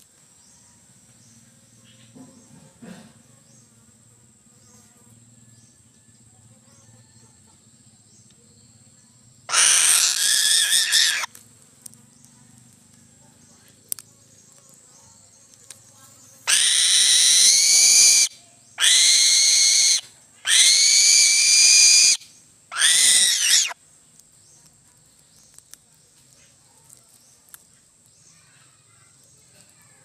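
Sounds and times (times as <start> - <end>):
eagle screaming calls: 9.5 - 11.3, 16.5 - 23.8.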